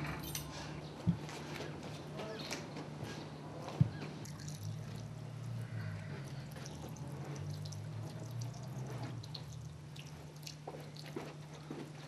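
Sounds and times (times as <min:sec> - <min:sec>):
water drips: 0:04.2 - 0:11.3.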